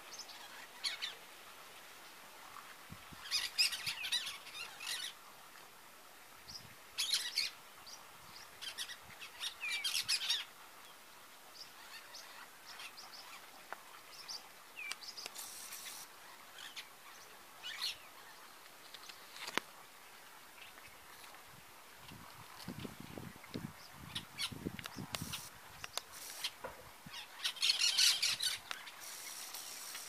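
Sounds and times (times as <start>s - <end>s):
parakeets calling: 24.1s - 30.0s.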